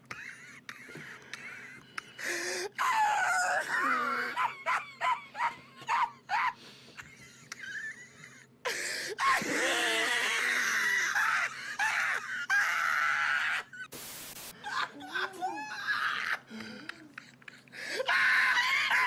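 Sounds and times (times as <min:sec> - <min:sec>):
man's stifled laughter: 0:03.7 - 0:08.5.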